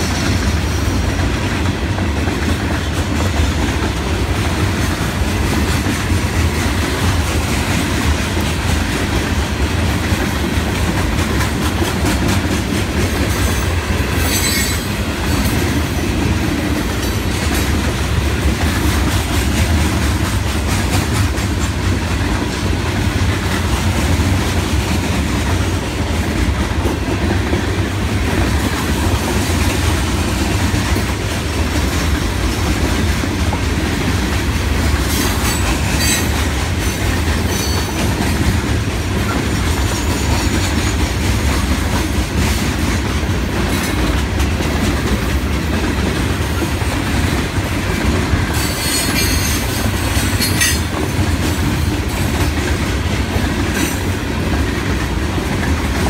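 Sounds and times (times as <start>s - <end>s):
clickety-clack over rail joints: 0.0s - 56.0s
train wheels rumbling on rail: 0.0s - 56.0s
high wheel squeals: 14.2s - 14.9s.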